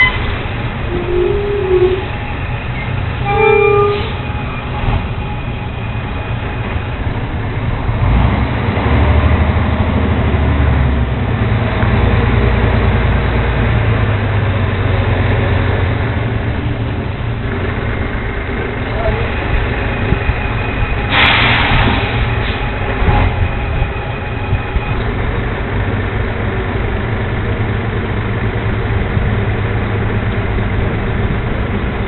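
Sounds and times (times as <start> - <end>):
garbage truck diesel engine rumble: 0.0 - 32.0
brief tone: 0.9 - 6.8, 19.0 - 25.3.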